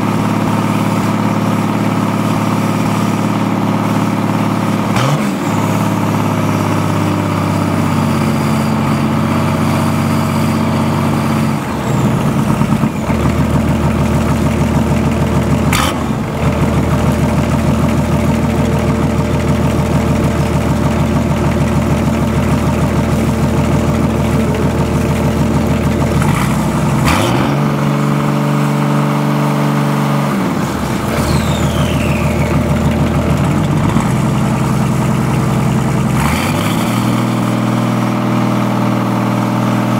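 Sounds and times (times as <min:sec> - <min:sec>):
diesel engine running unevenly: 0:00.0 - 0:39.9.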